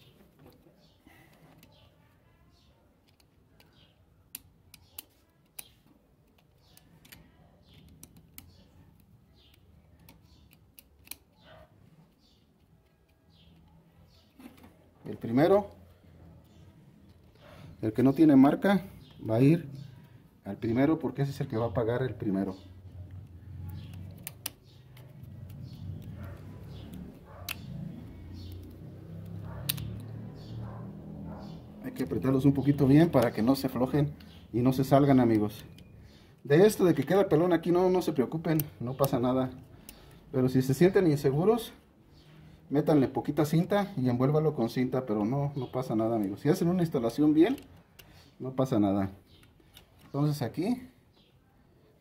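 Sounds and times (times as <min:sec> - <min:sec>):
screwdriver clicking on metal: 0:03.0 - 0:11.4.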